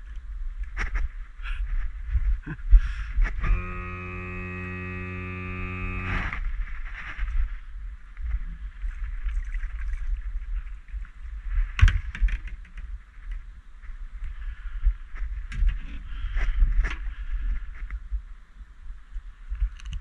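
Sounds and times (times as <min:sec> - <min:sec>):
steady buzzing tone: 0:01.8 - 0:08.7.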